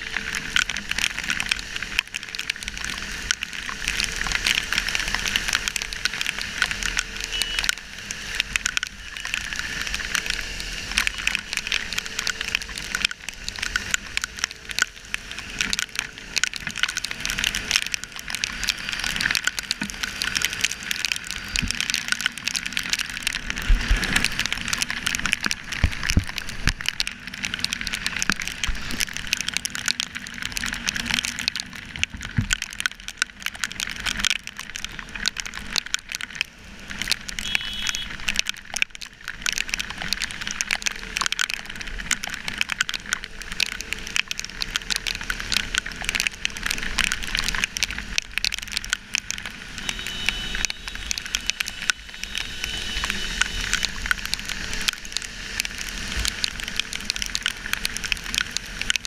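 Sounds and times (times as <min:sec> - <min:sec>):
rain drops hitting camera housing: 0:00.0 - 0:59.0.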